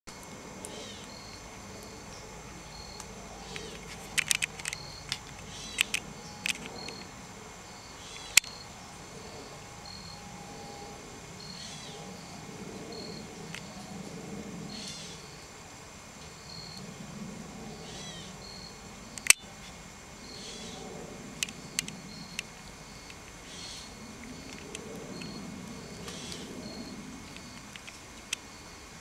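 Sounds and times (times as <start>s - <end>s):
faint high hum: 0.1s - 29.0s
insects chirping: 0.1s - 29.0s
sharp clicks: 3.0s - 7.1s, 19.2s - 19.4s, 21.4s - 23.4s.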